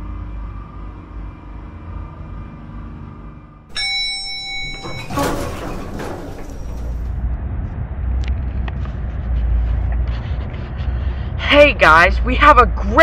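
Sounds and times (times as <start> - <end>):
bright chime: 3.7 - 5.2
elevator doors sliding: 3.7 - 7.2.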